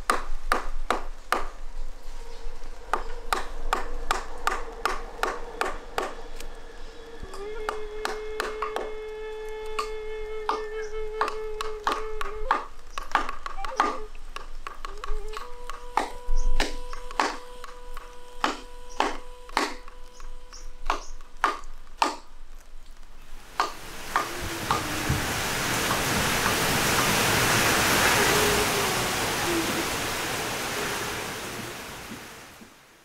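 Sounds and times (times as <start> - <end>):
carving tool striking wood: 16.0 - 17.4, 18.4 - 20.0, 20.9 - 22.3
steady rushing noise: 23.2 - 33.0.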